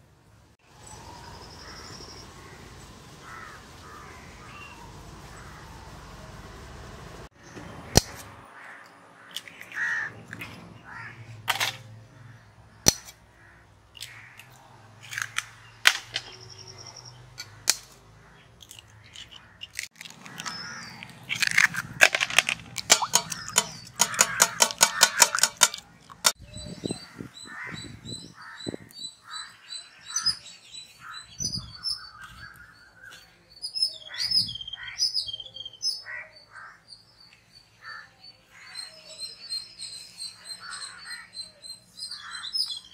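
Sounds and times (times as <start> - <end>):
crows cawing: 3.2 - 5.6, 8.6 - 10.1, 10.8 - 11.3, 13.3 - 14.6, 22.4 - 26.4, 27.4 - 30.4, 36.0 - 36.8, 40.4 - 41.4, 42.0 - 42.6
birds chirping: 7.3 - 42.9
eggs cracking on steel bowl: 18.6 - 26.4
eggs beaten clinking in bowl: 22.2 - 26.4.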